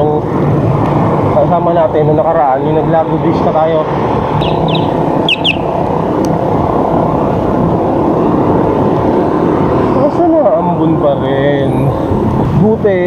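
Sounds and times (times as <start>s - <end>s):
wind on microphone: 2.2s - 13.0s
high falling chirps: 4.4s - 6.0s.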